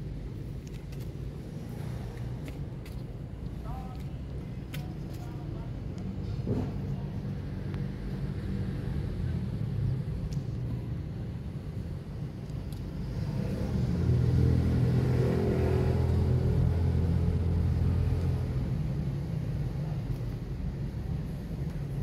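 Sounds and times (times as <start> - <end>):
car engine rumble passing: 12.9 - 20.0.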